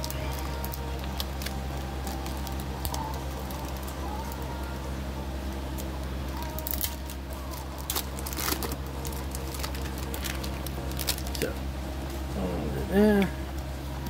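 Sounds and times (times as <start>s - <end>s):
foil wrapper crinkling and tearing: 0.0s - 4.4s, 5.8s - 11.6s
low hum: 0.0s - 14.0s.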